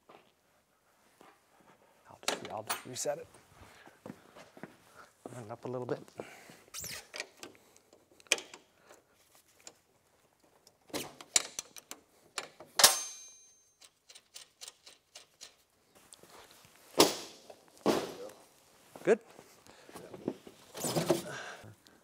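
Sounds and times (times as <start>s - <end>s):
metal tools clicking: 11.3s - 15.6s
loud ringing metal clank: 12.8s - 13.6s.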